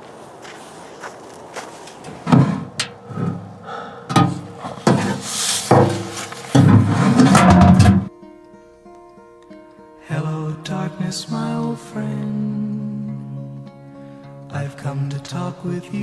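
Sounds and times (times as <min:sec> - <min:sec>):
faint footsteps: 0:00.0 - 0:07.5
mailbox knocks and rattles: 0:04.1 - 0:08.1
paper rustling: 0:04.6 - 0:07.3.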